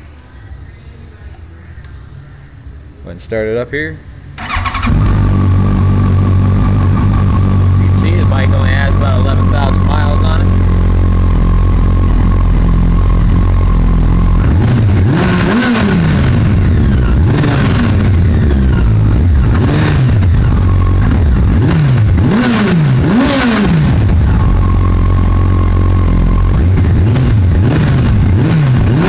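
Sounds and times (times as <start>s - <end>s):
motorcycle engine revving: 4.4s - 29.0s.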